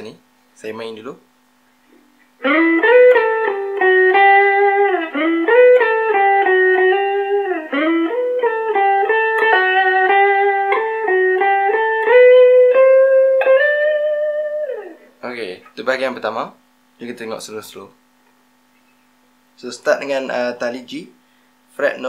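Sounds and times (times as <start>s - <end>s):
electric guitar melody: 2.4s - 15.2s.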